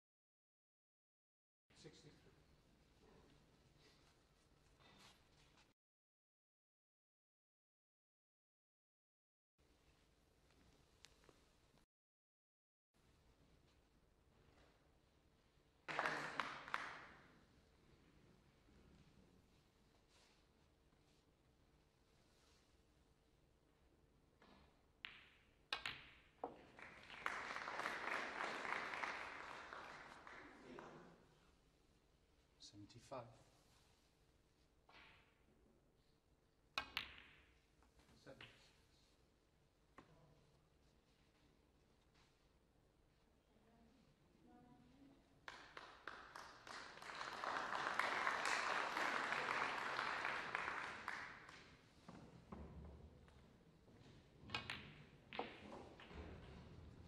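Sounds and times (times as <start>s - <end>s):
audience applause: 15.9s - 17.1s, 26.8s - 30.9s, 45.5s - 51.6s
ball dropping into pocket: 24.4s - 28.0s, 36.8s - 37.6s, 54.4s - 56.6s
snooker balls clicking: 24.4s - 28.4s, 36.8s - 38.7s, 54.4s - 56.7s.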